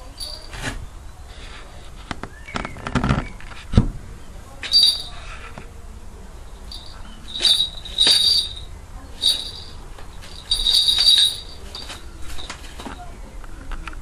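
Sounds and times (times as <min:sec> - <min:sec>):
falconry bells jingling: 0:00.0 - 0:00.6, 0:04.6 - 0:05.3, 0:06.6 - 0:12.6.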